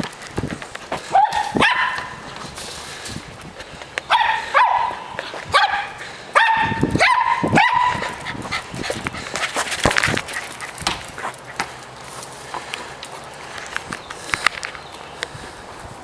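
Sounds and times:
small dog yapping: 1.1 - 2.2, 4.1 - 8.5.

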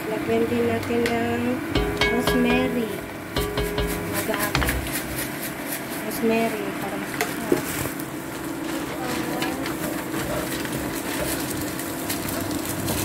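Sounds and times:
steady low hum: 1.6 - 6.1.

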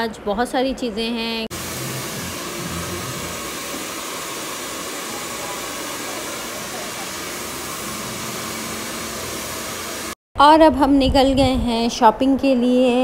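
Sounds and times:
hair dryer running: 1.5 - 10.2.

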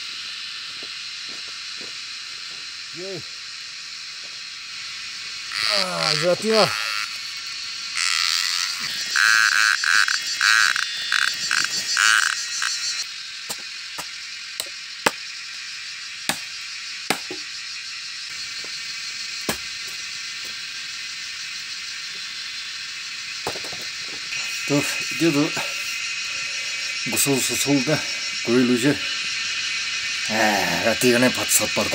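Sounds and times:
high hiss of insects: 0.0 - 31.9
frog calling in quick pulses: 5.5 - 13.1.

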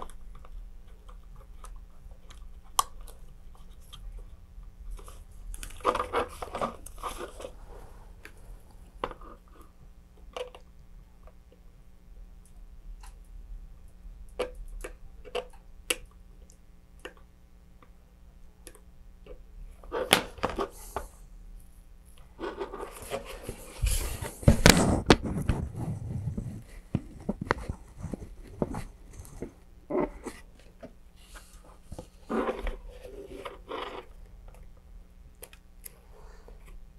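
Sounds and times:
plastic rustling: 0.0 - 9.8, 22.2 - 34.2.

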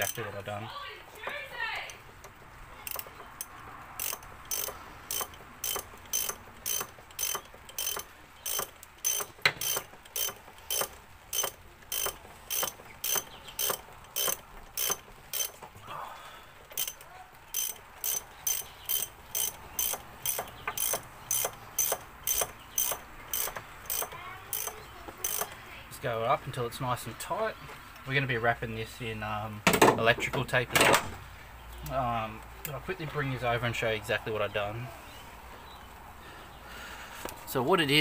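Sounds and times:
ratcheting spanner clicking: 0.0 - 0.2, 1.1 - 15.8, 16.6 - 25.6.

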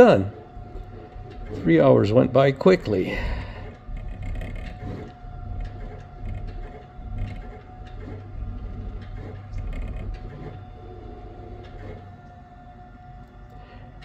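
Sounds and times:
printer motors whirring: 0.0 - 14.0
steady hum: 0.0 - 14.0.

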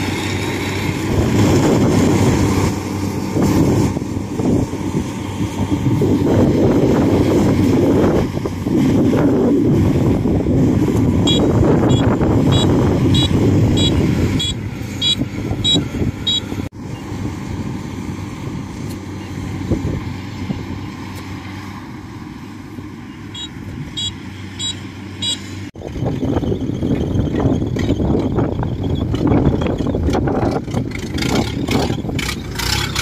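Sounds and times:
wind buffeting microphone: 0.0 - 21.2, 25.7 - 33.0
harvester engine running: 0.0 - 33.0
high chirp: 22.4 - 25.6.

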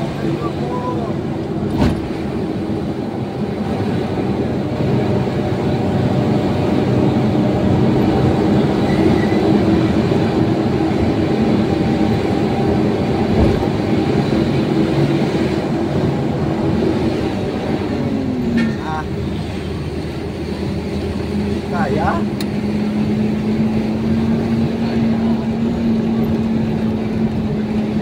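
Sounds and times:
truck engine and road noise: 0.0 - 28.0
brief thump: 13.3 - 13.6.

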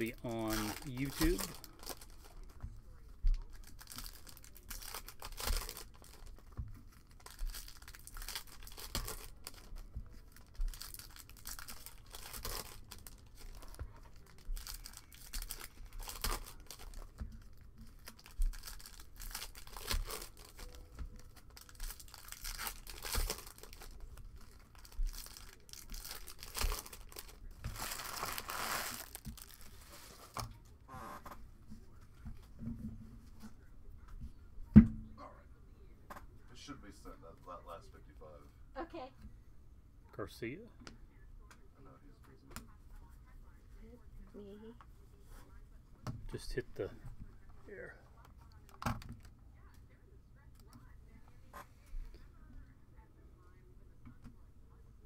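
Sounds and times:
foil wrappers crinkling: 0.0 - 2.6, 3.3 - 30.4.

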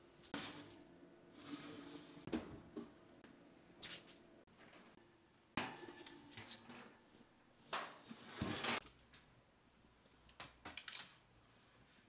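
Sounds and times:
metal tray scraping on rack: 0.4 - 2.3.

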